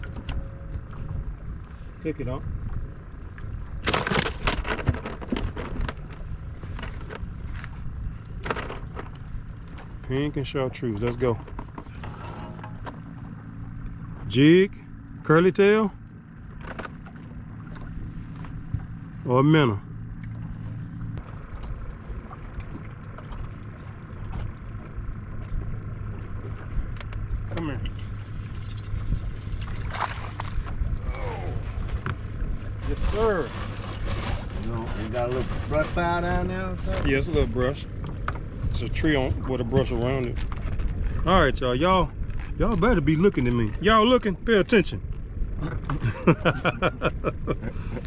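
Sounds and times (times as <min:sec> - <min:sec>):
low steady rumble: 0:00.0 - 0:48.0
steady low hum: 0:00.0 - 0:48.0
clicks and rustles of fishing gear: 0:03.8 - 0:10.1, 0:16.5 - 0:18.8, 0:26.9 - 0:30.8, 0:40.2 - 0:41.2.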